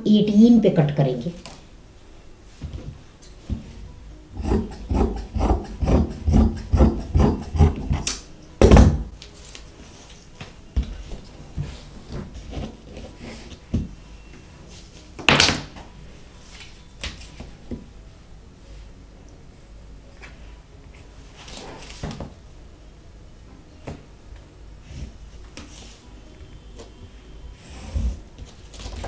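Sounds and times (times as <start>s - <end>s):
shears snipping fabric: 4.4s - 8.2s
loud knock on table: 8.6s - 9.1s.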